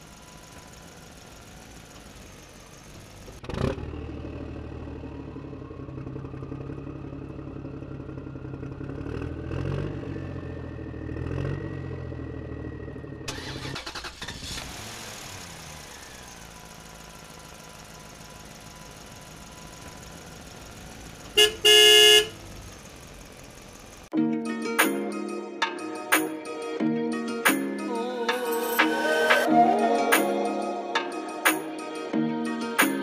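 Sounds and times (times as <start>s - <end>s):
vehicle engine running: 0.0s - 24.1s.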